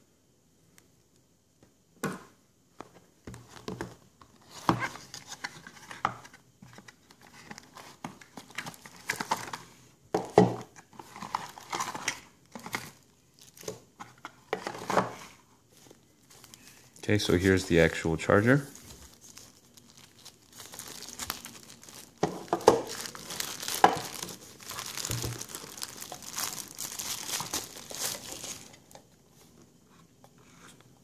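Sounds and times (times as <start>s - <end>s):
plastic wrap crinkling: 10.9s - 15.1s, 15.7s - 29.0s.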